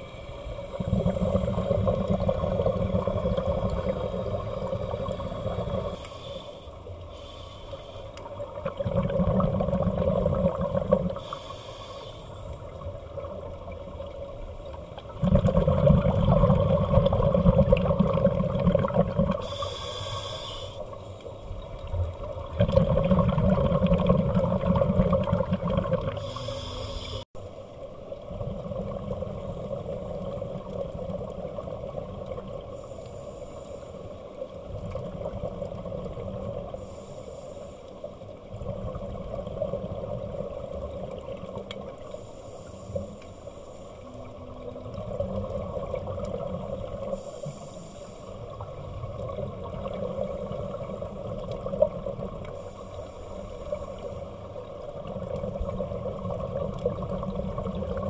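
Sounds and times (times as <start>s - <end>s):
underwater rumble and bubbles: 0.0s - 58.0s
regulator breathing hiss: 4.2s - 8.3s, 11.2s - 12.8s, 19.4s - 21.5s, 26.2s - 27.3s, 32.7s - 34.2s, 36.8s - 38.2s, 42.0s - 44.4s, 47.0s - 48.6s, 52.6s - 54.3s.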